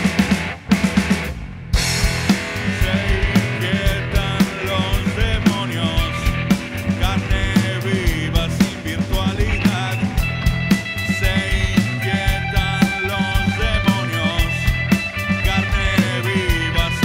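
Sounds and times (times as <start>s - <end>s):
bass guitar: 0.0s - 17.0s
drums: 0.0s - 17.0s
electric guitar: 0.0s - 17.0s
man singing: 2.6s - 17.0s.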